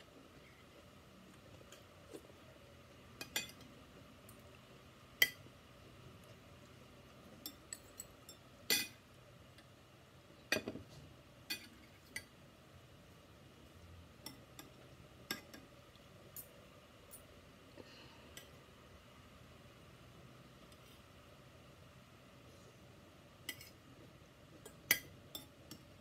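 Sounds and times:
cutlery clinking on plates: 10.5s - 10.8s.

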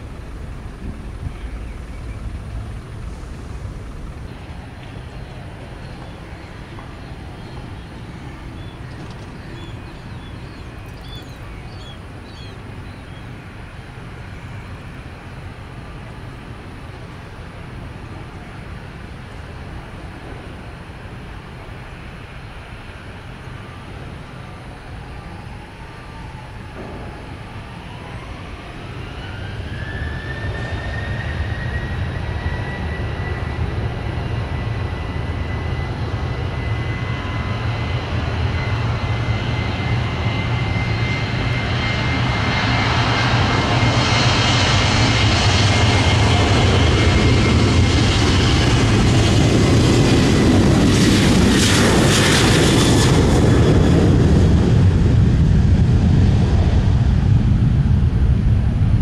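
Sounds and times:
jet engines spooling up: 0.0s - 17.9s, 18.7s - 59.0s
faint bird chirps: 5.2s - 13.3s.

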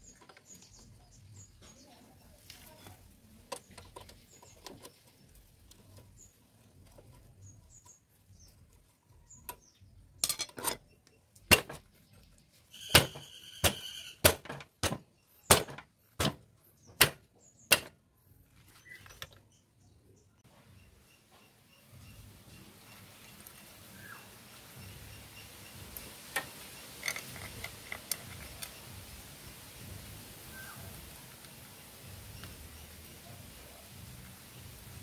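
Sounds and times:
sharp metallic knocks: 12.8s - 17.9s.

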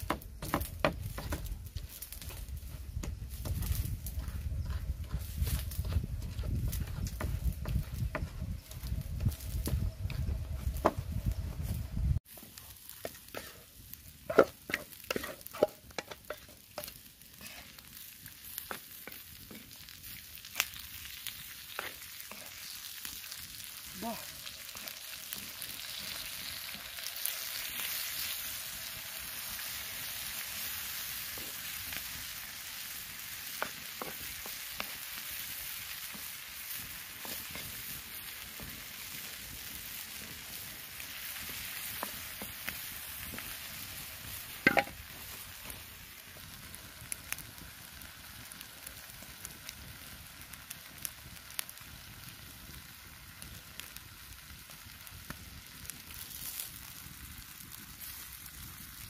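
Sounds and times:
octopus sizzling on hot stone: 0.0s - 59.0s
wooden spoon stirring: 14.3s - 17.6s.

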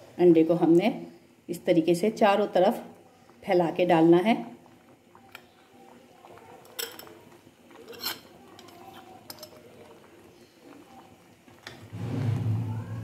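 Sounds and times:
spoon and bowl clinking on pan: 6.6s - 7.2s, 7.8s - 9.6s.

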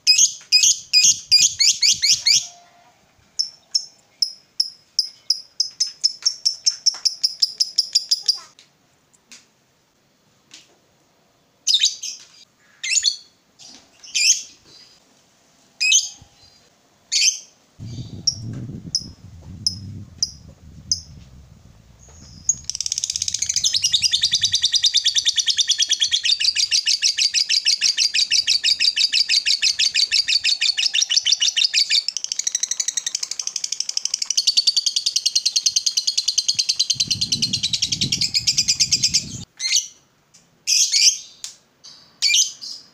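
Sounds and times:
lovebird chirping: 0.1s - 2.8s, 15.9s - 40.0s
low rumble: 17.8s - 25.4s, 37.0s - 39.4s
bird rapid chatter: 17.8s - 27.2s, 36.0s - 39.4s.

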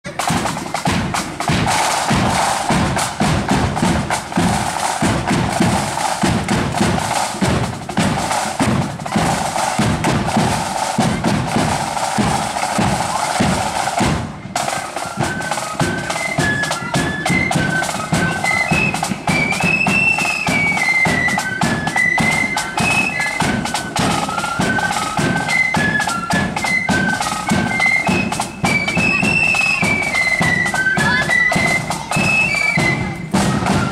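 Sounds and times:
snare and bass drums marching: 0.0s - 33.9s
flutes playing tune: 0.1s - 33.9s.

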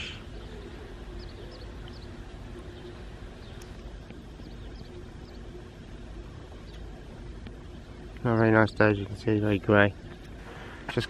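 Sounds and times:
faint high bird chirps: 0.0s - 5.6s
low rumble and hiss: 0.0s - 11.0s.

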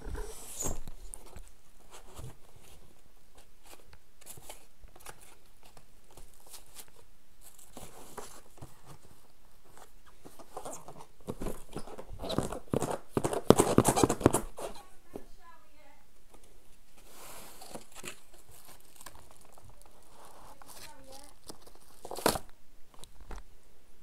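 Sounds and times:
rustling and clicks of handling: 16.3s - 23.5s.

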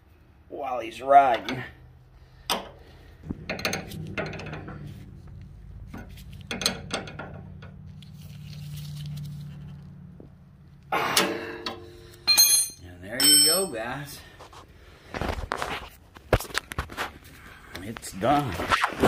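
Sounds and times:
low steady hum: 0.0s - 15.1s.

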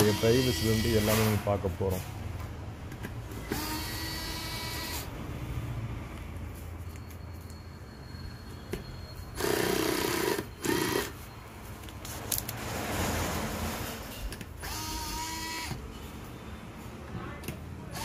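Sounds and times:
cordless screwdriver whining: 3.4s - 5.1s, 9.4s - 11.2s, 14.6s - 15.8s.

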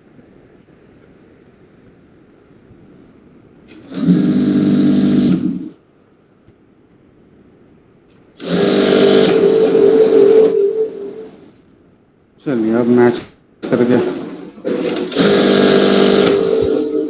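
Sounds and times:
sewing machine stitching: 8.4s - 9.8s, 13.6s - 17.0s.

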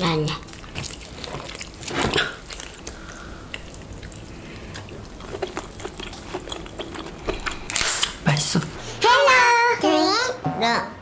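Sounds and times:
wet squishing of shellfish meat: 0.0s - 8.2s
chewing: 0.3s - 8.2s.

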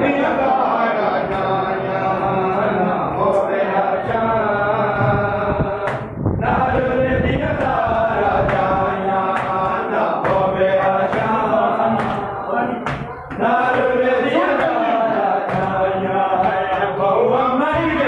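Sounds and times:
men chanting a lament: 0.0s - 18.0s
hands slapping chests: 8.4s - 13.9s.

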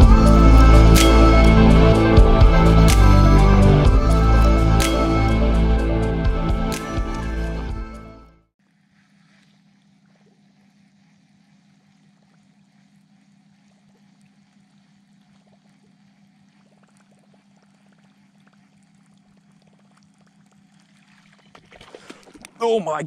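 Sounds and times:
steady low hum: 0.0s - 8.0s
light water sounds: 8.6s - 23.0s.

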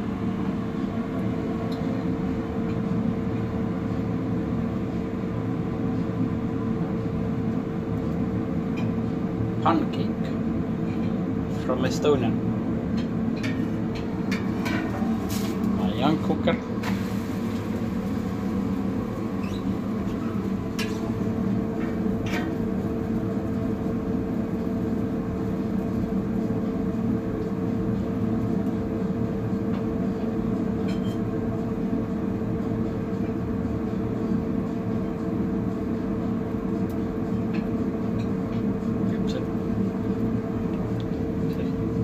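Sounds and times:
cooking equipment drone: 0.0s - 42.0s
pancake frying on griddle: 16.8s - 31.2s.

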